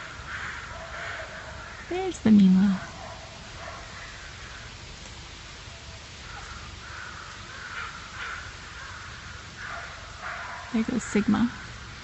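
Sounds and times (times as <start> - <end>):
crows cawing: 0.0 - 2.0, 3.6 - 4.8, 6.1 - 10.7.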